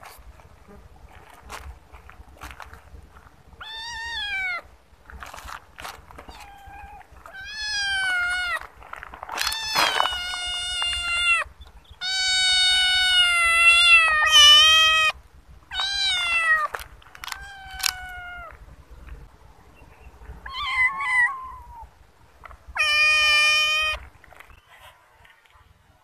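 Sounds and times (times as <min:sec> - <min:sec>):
kittens meowing: 0:03.6 - 0:04.7, 0:06.2 - 0:08.7, 0:09.4 - 0:18.6, 0:20.4 - 0:21.9, 0:22.7 - 0:24.0.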